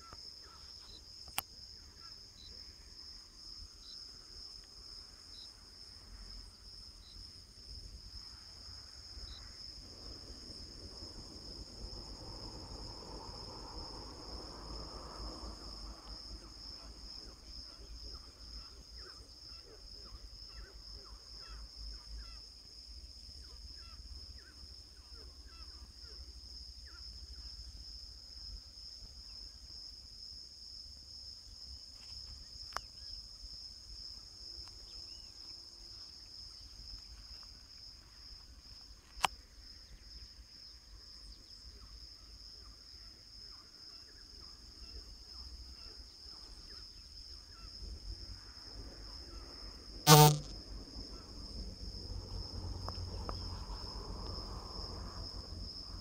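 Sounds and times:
crickets trilling: 0:00.0 - 0:56.0.

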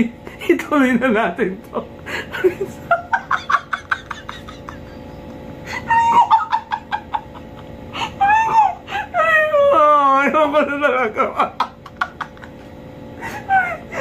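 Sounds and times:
man laughing in cackling bursts: 0:02.0 - 0:08.9, 0:11.2 - 0:14.0.

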